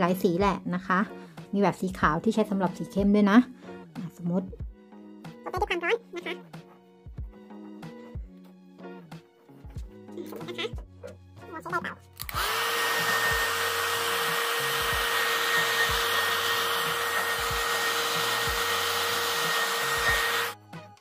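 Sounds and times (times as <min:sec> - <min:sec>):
hair dryer whining: 0:12.2 - 0:20.6.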